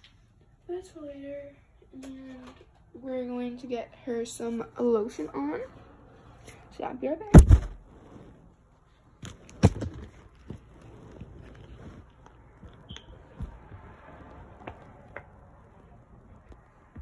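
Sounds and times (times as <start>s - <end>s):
phone handling knocks and rustles: 7.4s - 7.8s.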